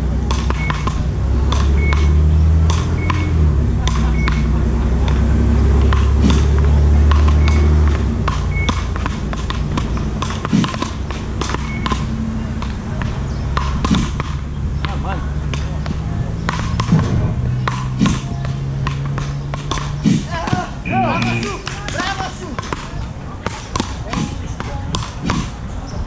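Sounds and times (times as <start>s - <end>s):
low rumble: 0.0s - 19.3s
paddles hitting a ball: 0.0s - 25.6s.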